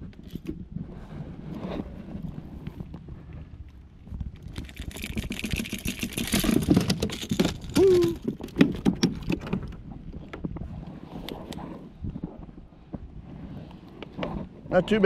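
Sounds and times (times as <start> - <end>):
lure and pliers rattling: 4.4 - 9.8.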